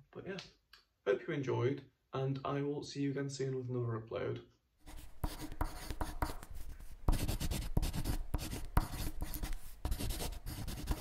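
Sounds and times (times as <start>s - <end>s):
pen scratching on paper: 4.8s - 11.0s.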